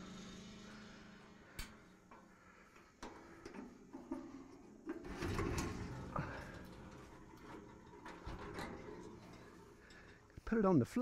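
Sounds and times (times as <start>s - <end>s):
metal chute clicks and clanks: 1.6s - 11.0s
rattling scrape: 2.4s - 10.6s.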